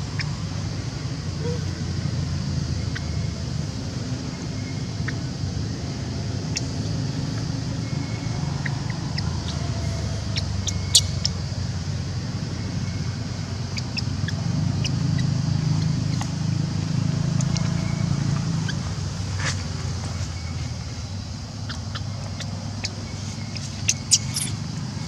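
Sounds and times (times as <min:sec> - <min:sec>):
low engine hum: 0:00.0 - 0:25.0
high chirps and ticks: 0:06.4 - 0:11.9, 0:12.6 - 0:18.9, 0:20.0 - 0:25.0.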